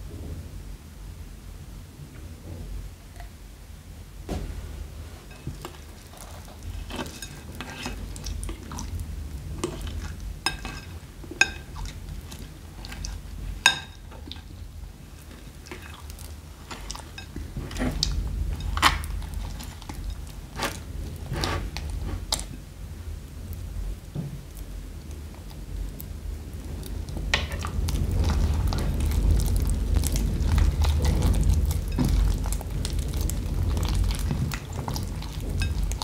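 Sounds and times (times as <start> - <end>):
wet squelching and crackling: 26.8 - 36.0.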